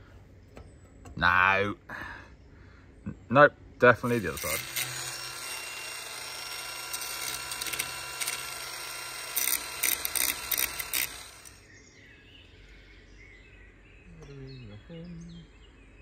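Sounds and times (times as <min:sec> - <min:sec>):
welding arc sizzling and crackling: 0:04.0 - 0:11.6.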